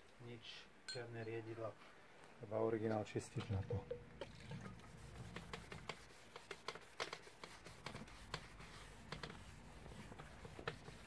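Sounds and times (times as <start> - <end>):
cloth rubbing on ski base: 4.9 - 11.0.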